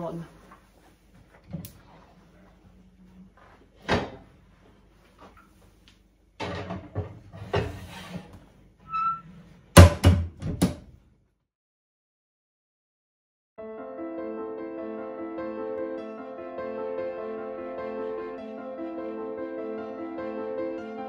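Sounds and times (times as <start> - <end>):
pot sliding with knocks and scrapes: 6.5 - 9.7.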